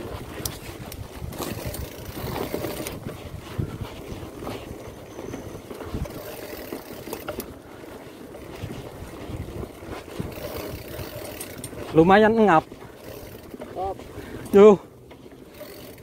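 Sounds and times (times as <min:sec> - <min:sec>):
wind on microphone: 0:00.0 - 0:07.4, 0:08.3 - 0:14.5
bike rattling over bumps: 0:00.0 - 0:16.0
tyres rumbling on dirt: 0:00.0 - 0:16.0.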